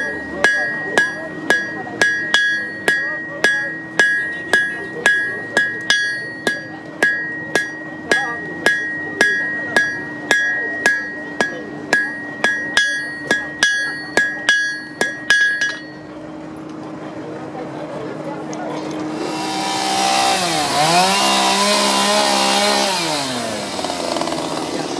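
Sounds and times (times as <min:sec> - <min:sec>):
hammer striking iron on anvil: 0:00.0 - 0:16.1.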